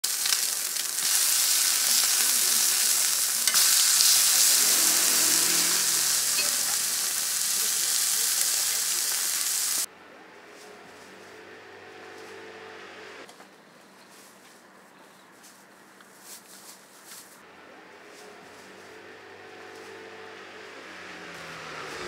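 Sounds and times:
food sizzling on a griddle: 0.0s - 9.9s.

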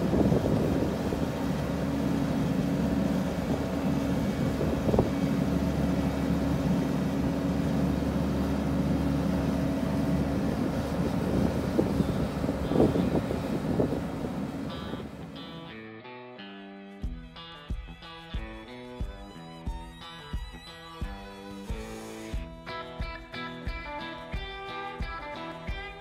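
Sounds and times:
diesel engine running: 0.0s - 15.7s.

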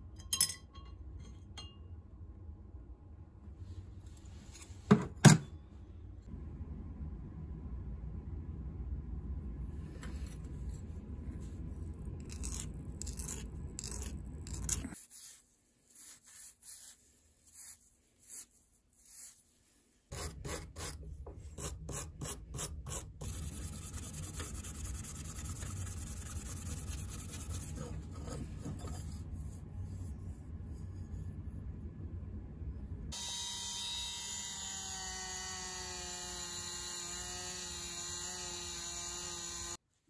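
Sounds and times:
low hum: 5.6s - 15.0s, 23.2s - 35.0s.

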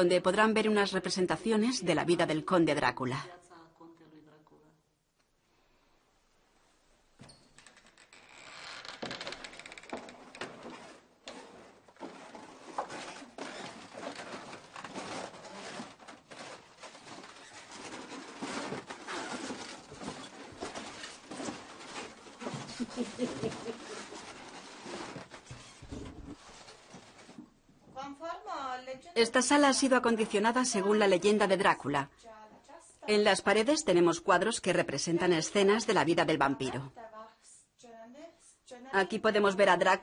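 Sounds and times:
footsteps and shuffling: 10.0s - 28.0s.

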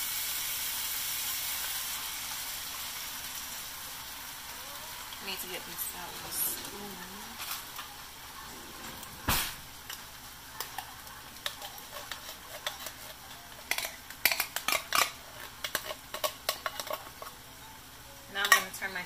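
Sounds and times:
beans sizzling in a frying pan: 0.0s - 19.0s.

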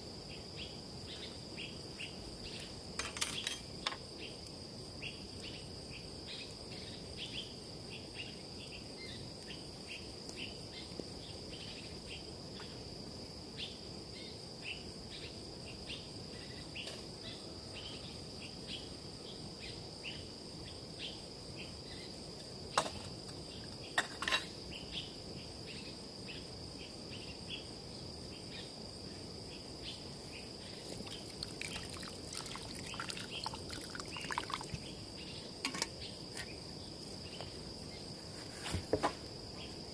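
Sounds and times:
insects droning: 0.0s - 39.9s
short insect chirps: 13.6s - 38.3s.

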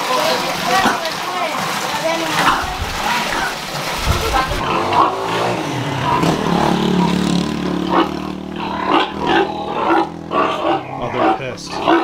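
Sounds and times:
pigs grunting: 2.3s - 12.0s
pigs squealing: 4.2s - 12.0s
low drawn-out pig call: 4.4s - 12.0s.

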